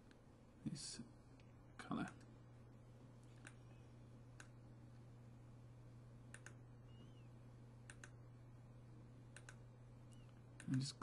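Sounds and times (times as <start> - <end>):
steady low hum: 0.0 - 11.0
computer mouse clicks: 3.2 - 3.6, 6.3 - 6.6, 7.8 - 8.2, 9.3 - 10.9.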